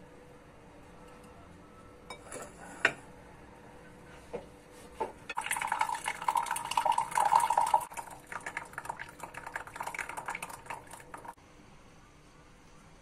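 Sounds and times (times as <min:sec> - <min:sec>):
tea pouring into a glass mug: 0:05.4 - 0:11.4.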